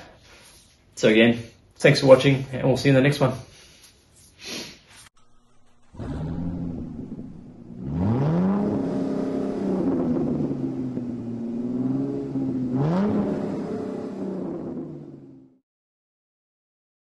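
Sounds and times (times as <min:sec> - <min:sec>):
car engine revving: 0:05.2 - 0:15.6.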